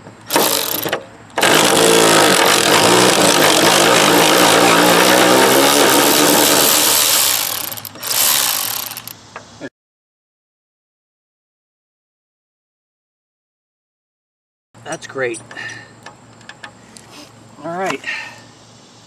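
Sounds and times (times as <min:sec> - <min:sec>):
cordless electric ratchet running: 0:00.3 - 0:09.2.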